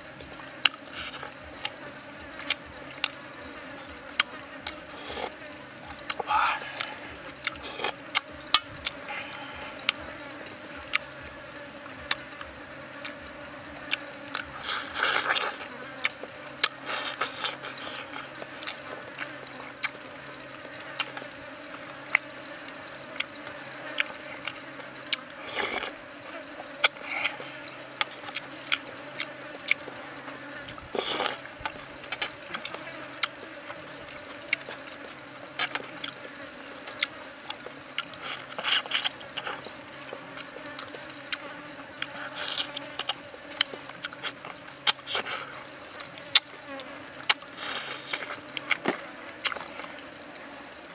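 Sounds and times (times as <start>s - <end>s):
insects buzzing: 0.0s - 50.9s
chewing and lip-smacking: 0.6s - 3.2s, 4.1s - 10.2s, 10.8s - 11.1s, 12.0s - 26.0s, 26.6s - 50.5s
slurping: 4.1s - 5.4s, 6.0s - 10.1s, 13.8s - 20.0s, 23.2s - 26.0s, 30.6s - 46.5s, 47.3s - 50.1s.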